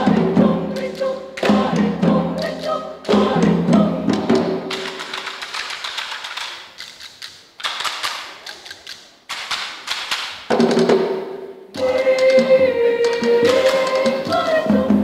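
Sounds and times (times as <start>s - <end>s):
choir singing held notes: 0.0s - 4.9s, 11.7s - 15.0s.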